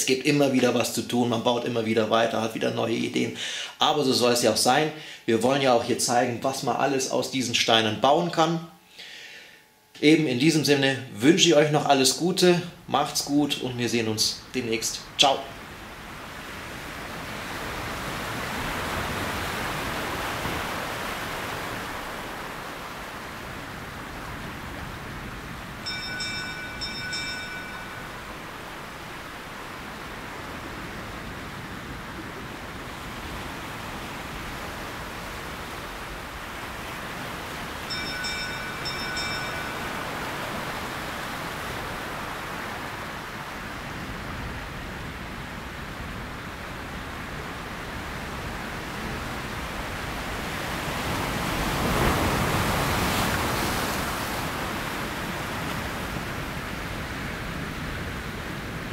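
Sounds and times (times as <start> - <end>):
surf washing: 12.4 - 58.9
bell ringing: 25.8 - 28.8, 37.8 - 41.1.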